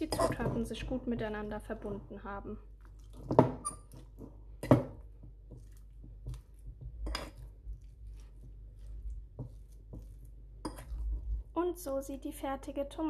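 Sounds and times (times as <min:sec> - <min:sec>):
fork mashing butter: 0:02.8 - 0:11.4.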